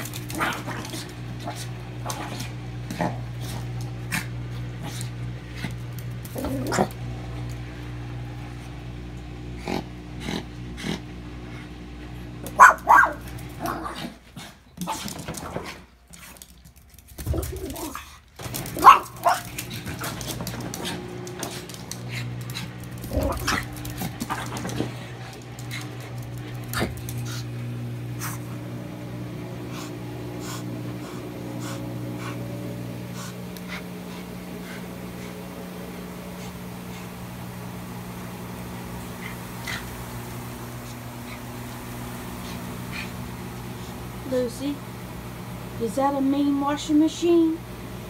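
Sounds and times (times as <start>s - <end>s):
dog growling: 0.0s - 7.2s, 9.4s - 11.7s, 18.8s - 28.6s
low machine hum: 0.0s - 48.0s
dog barking: 12.5s - 14.0s, 18.8s - 19.6s.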